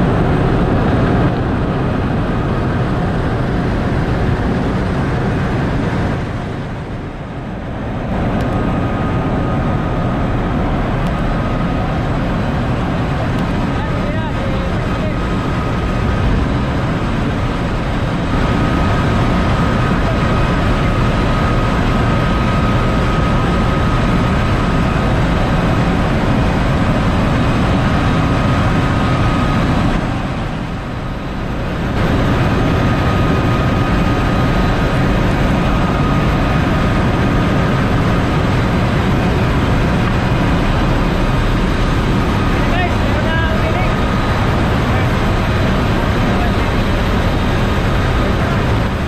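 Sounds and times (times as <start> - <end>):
constant high whine: 0.0 - 49.0
engine-room machinery din: 0.0 - 49.0.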